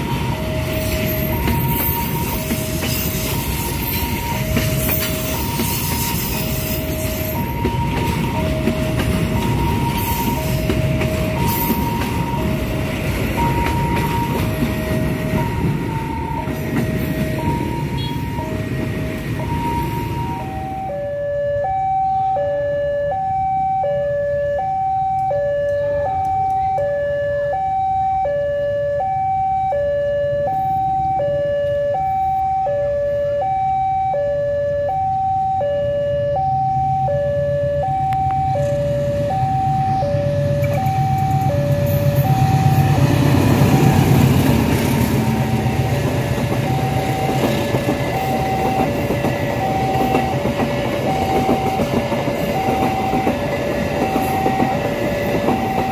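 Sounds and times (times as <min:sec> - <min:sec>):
train rumbling past: 0:00.0 - 0:21.0, 0:35.8 - 0:55.9
two-tone crossing alarm: 0:00.0 - 0:55.9.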